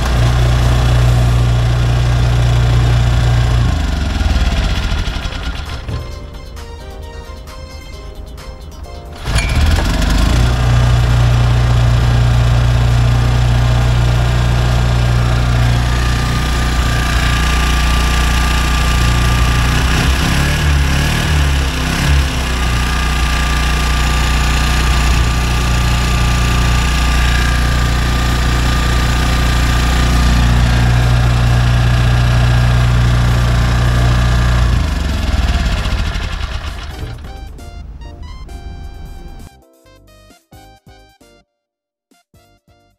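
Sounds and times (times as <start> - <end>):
portable generator engine running: 0.0 - 39.5.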